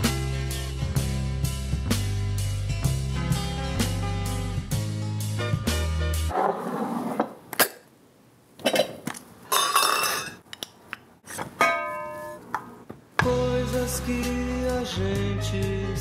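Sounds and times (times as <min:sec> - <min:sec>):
music: 0:00.0 - 0:06.3, 0:13.2 - 0:16.0
measuring cup clinking: 0:08.7 - 0:10.4.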